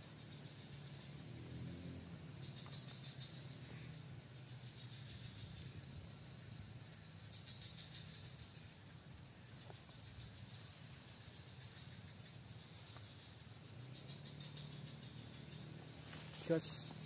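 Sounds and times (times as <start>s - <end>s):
high-pitched insect drone: 0.0s - 17.0s.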